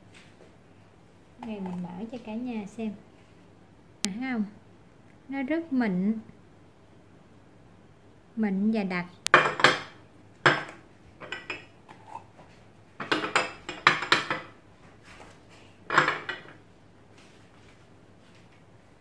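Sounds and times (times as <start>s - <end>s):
glass jars clinking: 10.5s - 12.2s, 13.0s - 14.5s.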